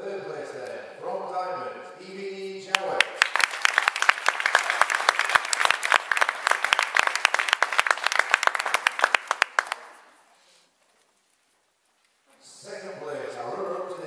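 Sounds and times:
audience applauding: 2.7 - 10.2.

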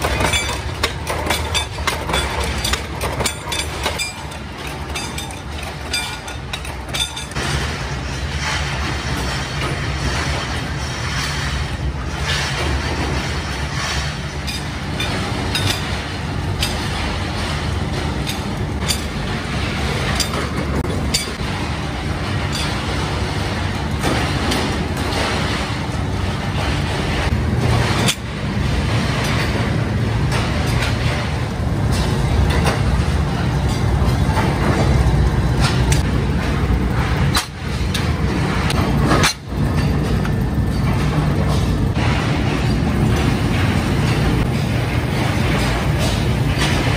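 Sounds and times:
low machine drone: 0.0 - 46.9
metal clanks and knocks: 0.0 - 46.9.

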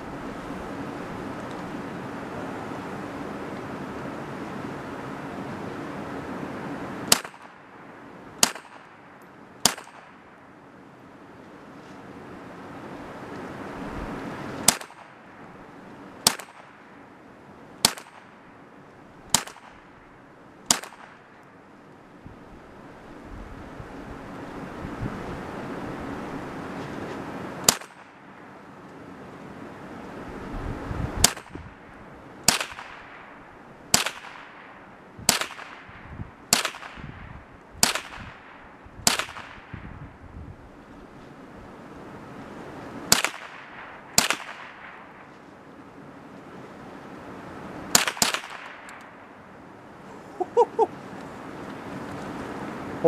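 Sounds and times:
rifle shots: 7.1 - 7.6, 8.4 - 10.3, 14.7 - 15.2, 16.2 - 16.8, 17.8 - 18.4, 19.3 - 19.9, 20.7 - 21.3, 32.5 - 37.1, 37.8 - 39.8, 43.1 - 45.2, 47.9 - 49.0.

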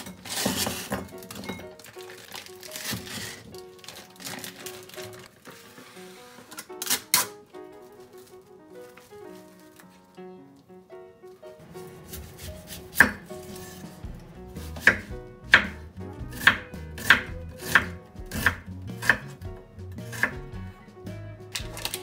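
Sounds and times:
knife slicing onion on wooden board: 14.7 - 19.4, 20.0 - 20.4.

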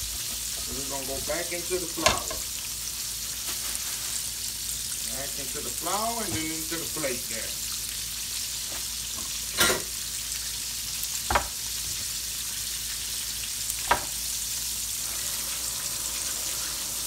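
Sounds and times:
steaks sizzling in oil: 0.0 - 17.0
short knocks: 11.3 - 11.6.

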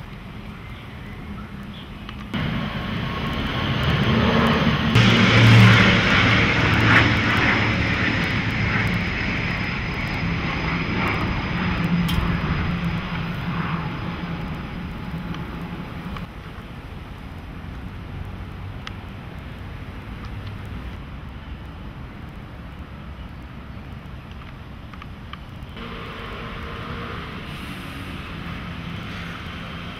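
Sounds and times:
airplane flying over: 0.0 - 16.6, 25.0 - 29.9.

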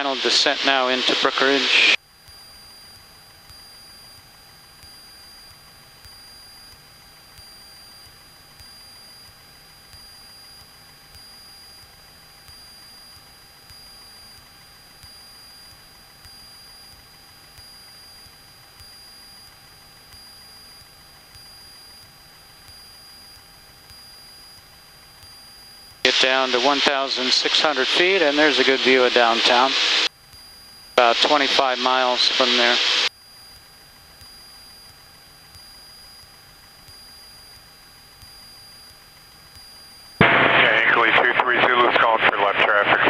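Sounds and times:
low engine drone: 0.0 - 2.0, 26.1 - 30.1
high electrical whine: 0.0 - 43.0
small regular pulse: 1.7 - 26.7, 28.8 - 40.6.

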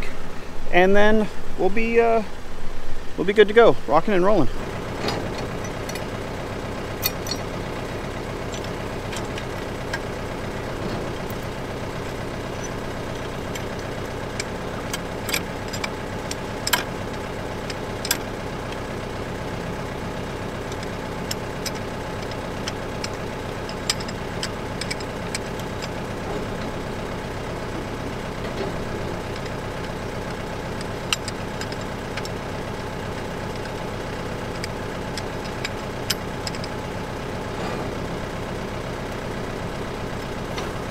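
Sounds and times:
tractor diesel engine idling: 3.2 - 40.9
metal clicks and clinks: 4.9 - 18.9, 20.6 - 26.8, 28.4 - 36.9.

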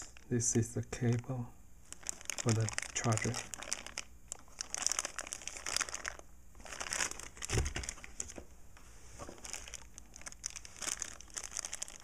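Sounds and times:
plastic bag crinkling: 1.8 - 8.5, 9.2 - 12.0.

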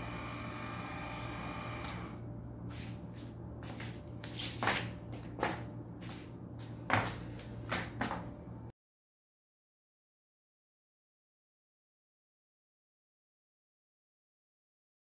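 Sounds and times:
massager motor whirring: 0.0 - 2.8
low hum: 0.0 - 8.7.

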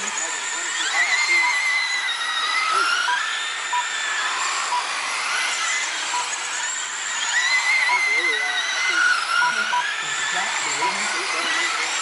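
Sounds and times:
rc race car motors whining: 0.0 - 12.0
short beeps: 9.4 - 9.9.

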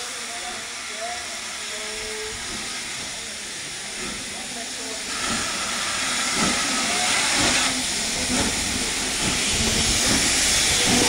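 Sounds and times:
steam locomotive hissing: 0.0 - 11.0.

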